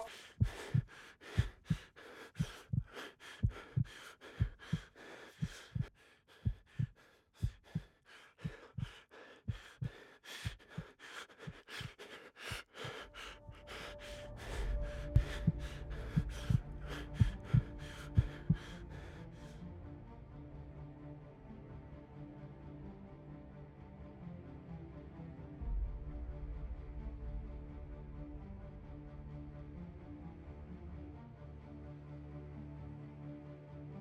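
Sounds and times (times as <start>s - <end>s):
heartbeat double thump: 0.0s - 9.9s, 15.1s - 18.6s
low dark music drone: 11.5s - 33.8s.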